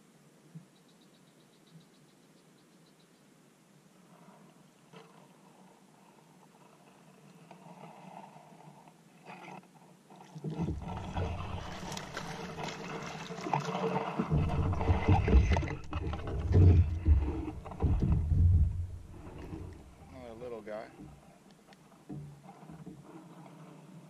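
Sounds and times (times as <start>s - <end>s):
fish splashing and thrashing: 9.3s - 20.2s
heavy low knocks on hull: 14.2s - 20.3s.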